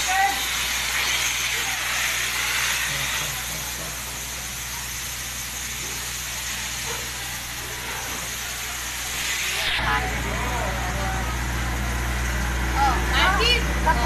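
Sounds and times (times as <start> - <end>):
fire hose spraying concrete: 0.0 - 14.0
fire truck engine drone: 0.0 - 14.0.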